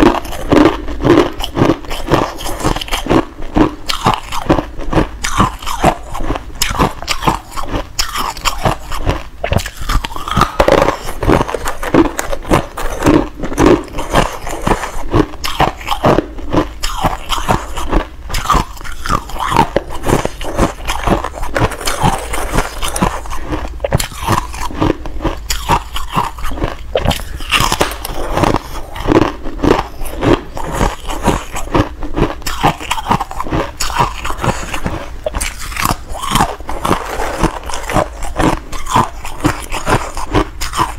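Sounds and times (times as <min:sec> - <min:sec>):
crisp chewing crunches: 0:00.0 - 0:40.9.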